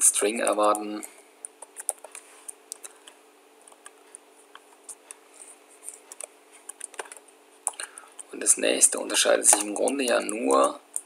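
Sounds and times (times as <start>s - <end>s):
faint steady hum: 0.0s - 11.0s
keyboard keys clicking: 5.9s - 8.3s, 9.5s - 11.0s.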